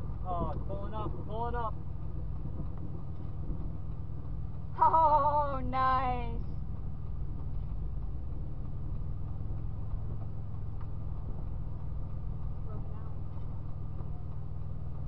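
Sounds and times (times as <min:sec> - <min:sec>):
wind rumble on microphone: 0:00.0 - 0:15.0
person exclaiming: 0:04.8 - 0:05.4.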